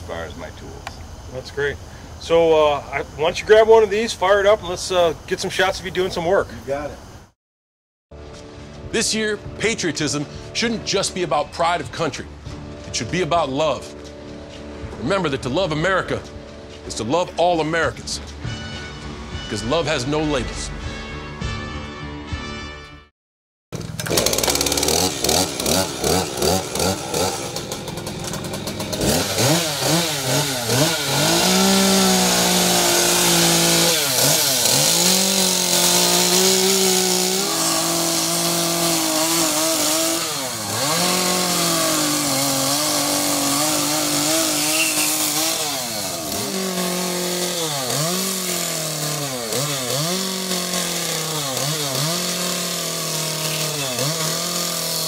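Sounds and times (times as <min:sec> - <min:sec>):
chainsaw revving and cutting wood: 0:23.8 - 0:55.0.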